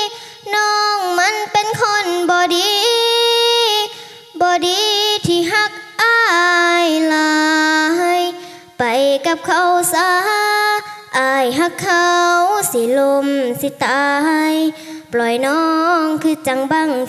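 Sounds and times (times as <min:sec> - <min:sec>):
girl singing unaccompanied: 0:00.0 - 0:17.0
girl breathing: 0:00.1 - 0:00.5, 0:03.9 - 0:04.3, 0:08.4 - 0:08.8, 0:10.8 - 0:11.1, 0:14.7 - 0:15.1.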